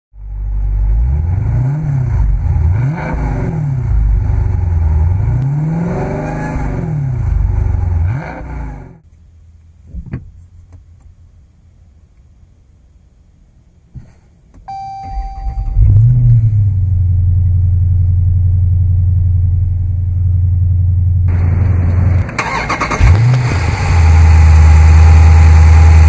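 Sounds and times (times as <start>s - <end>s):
car engine revving: 0.4s - 9.0s, 15.5s - 26.0s.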